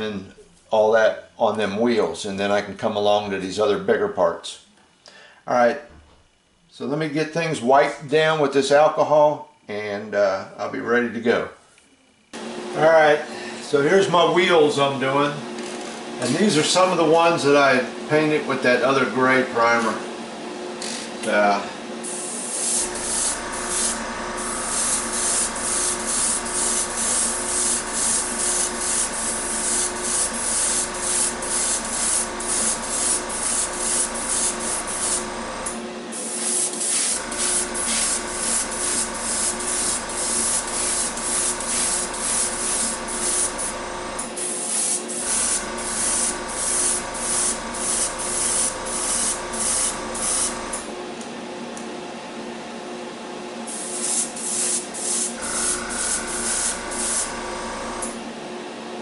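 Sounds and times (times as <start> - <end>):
motor hum: 21.9 - 51.9, 55.3 - 58.4
airbrush hissing bursts: 22.1 - 35.6, 36.2 - 43.8, 44.4 - 50.8, 53.7 - 58.1.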